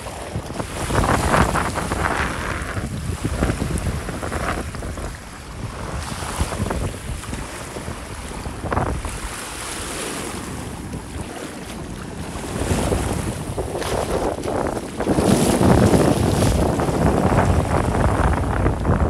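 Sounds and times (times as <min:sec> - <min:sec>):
small waves lapping: 0:00.0 - 0:18.9
wind buffeting microphone: 0:00.0 - 0:19.0.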